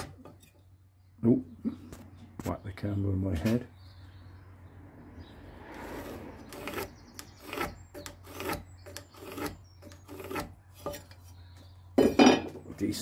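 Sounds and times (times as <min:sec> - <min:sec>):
pencil scratching on timber: 0:05.8 - 0:11.3.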